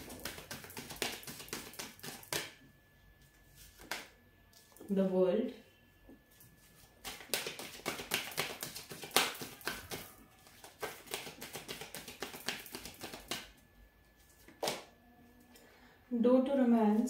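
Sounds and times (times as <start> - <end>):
cards shuffled by hand: 0.0 - 2.5, 3.6 - 4.1, 7.0 - 13.5.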